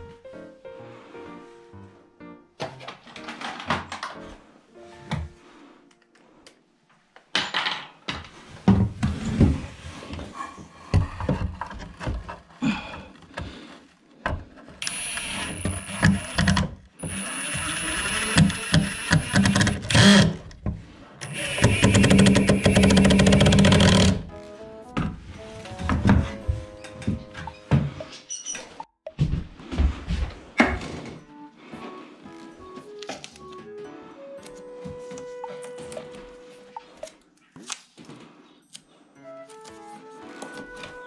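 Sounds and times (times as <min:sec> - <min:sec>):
power tool running: 0:14.8 - 0:20.4, 0:21.2 - 0:24.2.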